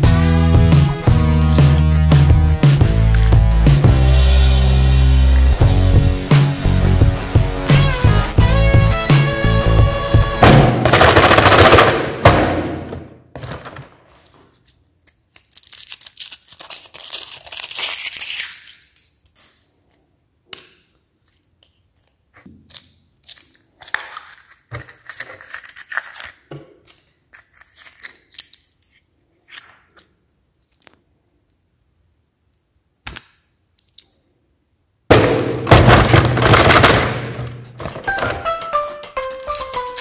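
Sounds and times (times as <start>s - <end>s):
chocolate breaking: 3.0s - 3.4s, 14.8s - 19.6s, 20.8s - 31.0s, 35.6s - 40.0s
foil wrapper crinkling and tearing: 3.0s - 3.4s, 13.4s - 19.5s, 22.6s - 30.0s, 36.1s - 40.0s
plastic toy parts handled: 3.0s - 3.4s, 13.4s - 20.0s, 21.1s - 31.2s, 33.0s - 34.2s, 35.7s - 40.0s.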